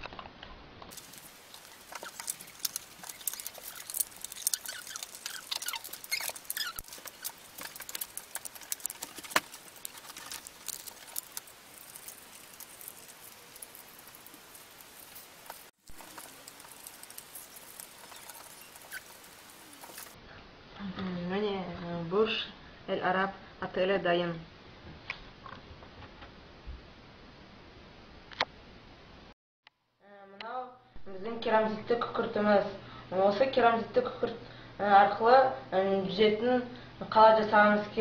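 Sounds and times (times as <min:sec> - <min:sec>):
card pieces crackling: 0:00.9 - 0:20.2.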